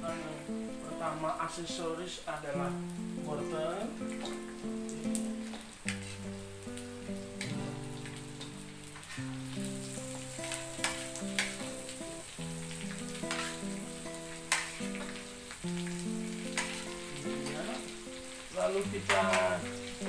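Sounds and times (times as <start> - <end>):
food sizzling in hot oil: 0.0 - 20.0
spatula scraping pan: 5.9 - 6.3, 13.2 - 13.8, 14.5 - 15.2, 16.5 - 17.6.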